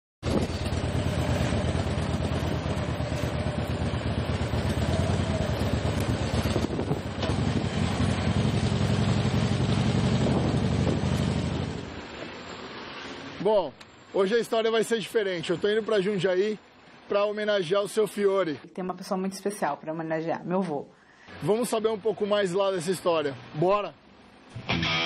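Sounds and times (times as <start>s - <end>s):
motorcycle engine riding: 0.2s - 12.3s.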